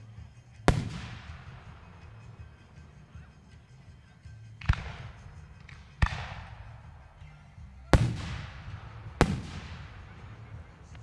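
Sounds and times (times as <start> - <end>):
firework shells bursting with echo: 0.5 - 3.3, 4.5 - 7.2, 7.9 - 11.0.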